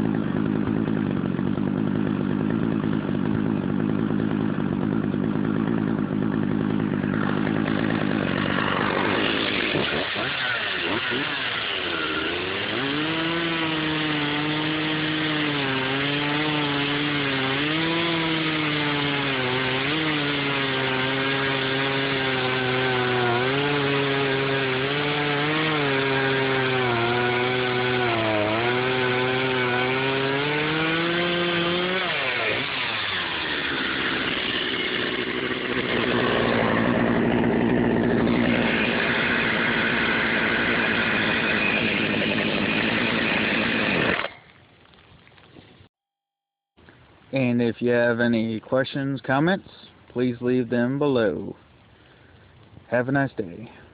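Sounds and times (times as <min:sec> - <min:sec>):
chainsaw idling: 0:00.0 - 0:44.5
chainsaw cutting log: 0:00.0 - 0:44.6.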